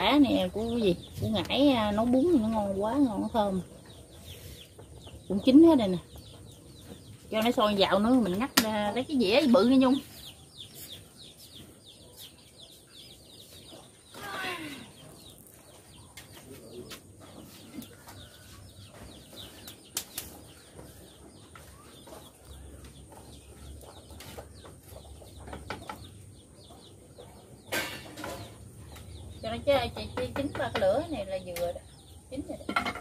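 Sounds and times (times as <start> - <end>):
chicks cheeping: 0.2 - 32.7.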